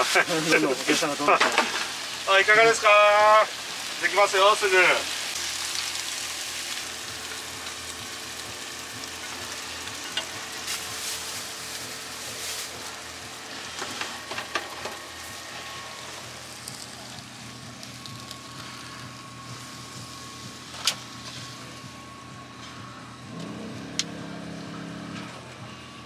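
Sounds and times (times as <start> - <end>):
food frying in a pan: 0.0 - 19.2
low hum: 5.2 - 26.0.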